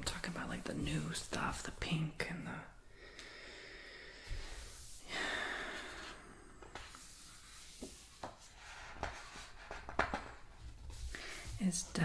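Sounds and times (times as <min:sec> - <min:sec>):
soft taps and rubs on pages: 0:06.6 - 0:12.0.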